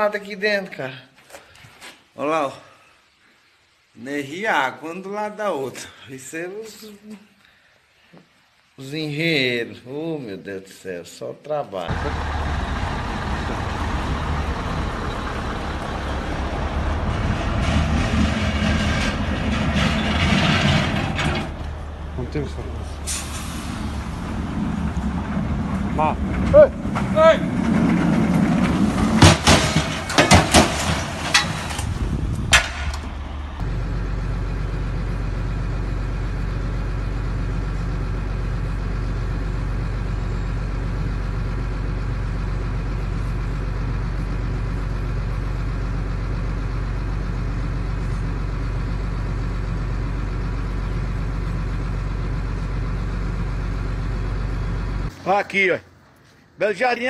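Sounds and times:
vehicle engine droning: 11.9 - 55.2
sharp knocks and clattering: 16.8 - 21.8, 24.8 - 33.7.

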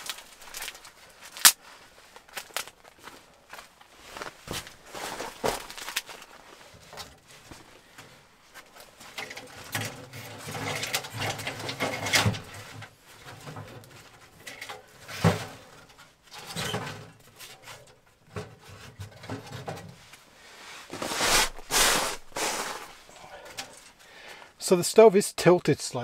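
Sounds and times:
dry sticks snapping: 0.0 - 1.6.

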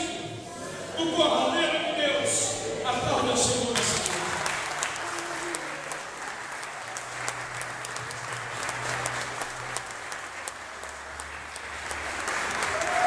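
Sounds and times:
people clapping: 3.6 - 13.0.

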